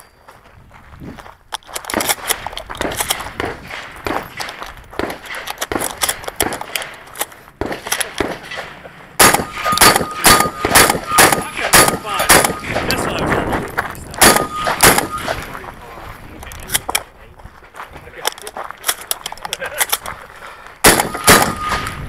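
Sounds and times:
gunshots: 1.9 - 13.2, 14.2 - 15.5, 20.8 - 22.0
steel targets ringing: 8.3 - 13.0, 14.2 - 15.4, 20.9 - 22.0.

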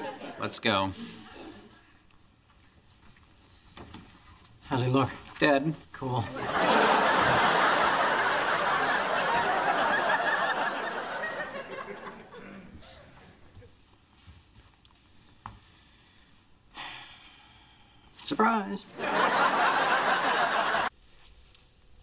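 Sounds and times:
studio audience laughing: 0.0 - 0.5, 6.3 - 12.6, 18.9 - 20.9.

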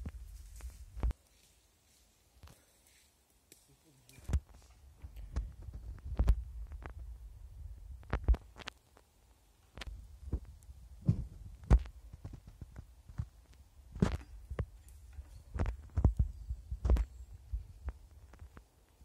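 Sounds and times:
twigs snapping: 3.5 - 4.5.

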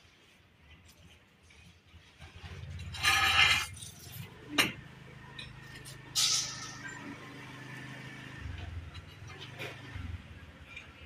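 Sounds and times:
rasping tile scrape: 2.2 - 4.3.

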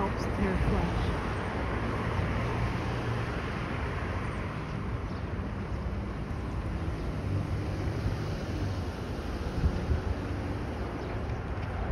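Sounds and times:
low traffic hum: 0.0 - 11.9
wind on microphone: 8.7 - 11.9.

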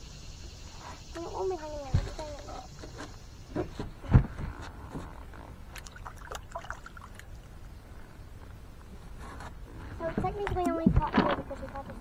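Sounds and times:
water splashing and dripping: 5.7 - 7.5.

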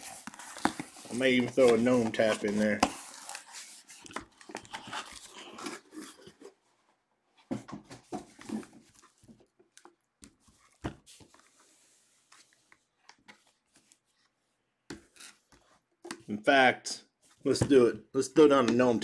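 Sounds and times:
cardboard rustling and sliding: 0.0 - 6.6, 10.4 - 12.7.

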